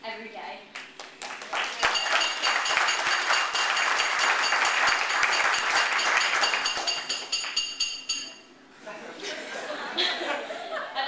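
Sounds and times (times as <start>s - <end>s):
crowd applauding: 0.9s - 7.8s.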